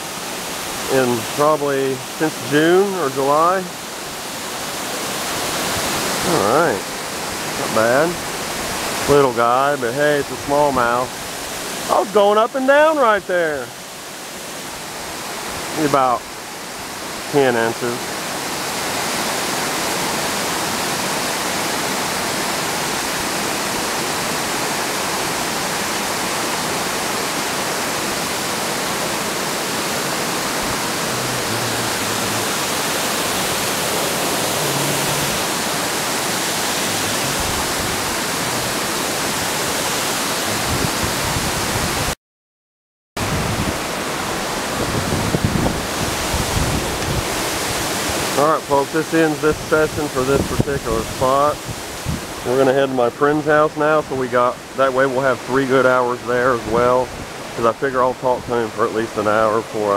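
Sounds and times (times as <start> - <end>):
water rushing over dam: 0.0 - 42.2, 43.2 - 59.9
low thumps: 30.0 - 39.5, 40.4 - 41.5.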